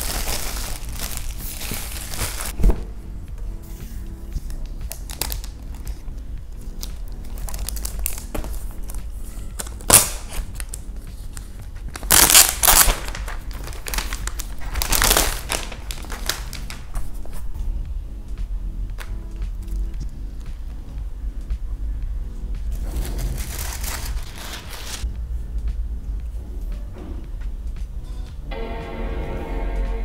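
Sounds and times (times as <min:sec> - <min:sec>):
plastic sleeve crinkling: 0:00.0 - 0:02.6, 0:04.4 - 0:06.0, 0:06.7 - 0:17.4, 0:22.7 - 0:25.0
soft background music: 0:00.0 - 0:30.0.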